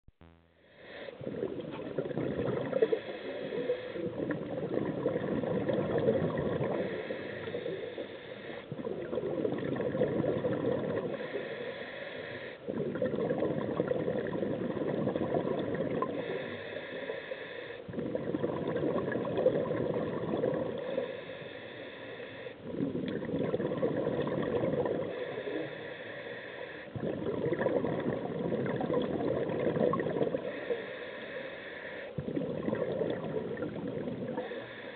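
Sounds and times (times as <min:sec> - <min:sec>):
regulator inhale hiss: 0:00.6 - 0:01.3, 0:02.8 - 0:04.3, 0:06.6 - 0:08.8, 0:11.0 - 0:12.7, 0:16.0 - 0:18.0, 0:20.8 - 0:22.7, 0:25.1 - 0:27.0, 0:30.4 - 0:32.3, 0:34.3 - 0:34.9
exhale bubbling gurgle: 0:01.2 - 0:11.7, 0:12.6 - 0:17.2, 0:17.8 - 0:21.5, 0:22.6 - 0:26.1, 0:26.8 - 0:31.4, 0:32.1 - 0:34.9.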